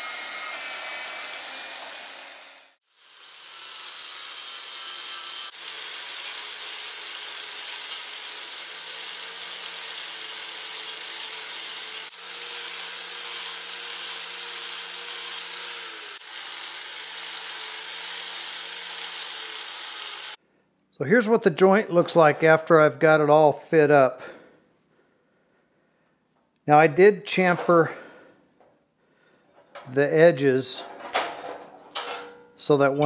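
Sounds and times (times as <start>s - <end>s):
angle grinder grinding steel: 0.0s - 20.4s.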